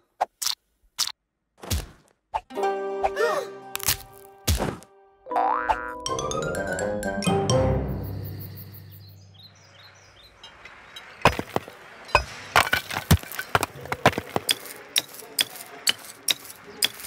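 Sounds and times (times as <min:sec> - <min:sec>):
hammer and chisel strikes on stone: 0:11.2 - 0:17.0.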